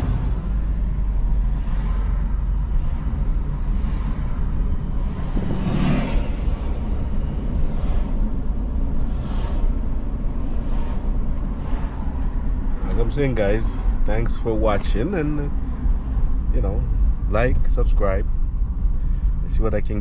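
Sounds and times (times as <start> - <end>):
vehicles swishing past: 0.0 - 14.4
car engine and tyre rumble: 0.0 - 20.0.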